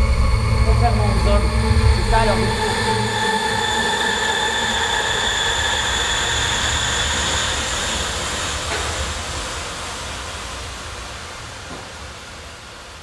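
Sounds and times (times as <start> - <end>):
sustained high tones: 0.0 - 8.2
low rumbling drone: 0.0 - 11.6.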